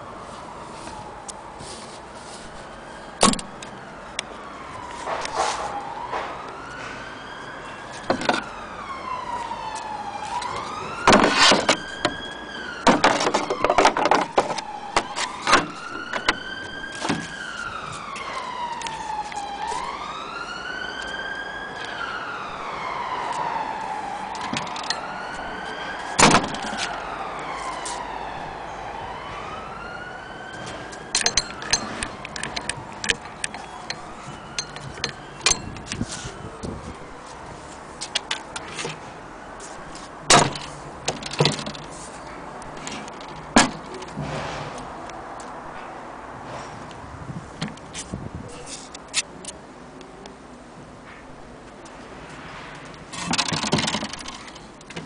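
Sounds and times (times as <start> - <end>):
emergency vehicle siren wailing: 0.0 - 44.2
sharp clicks and knocks: 30.6 - 36.1, 40.3 - 42.0, 42.6 - 45.6, 52.8 - 55.0.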